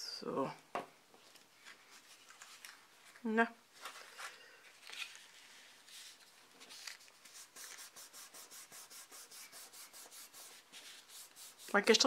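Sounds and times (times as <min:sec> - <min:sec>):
hands rubbing paper: 0:04.9 - 0:12.0.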